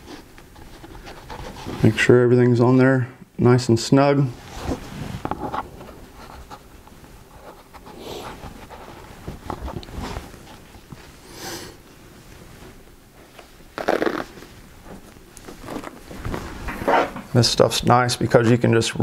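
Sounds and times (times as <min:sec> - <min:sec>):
hands rustling crinkly tape wrap: 0:11.9 - 0:17.5.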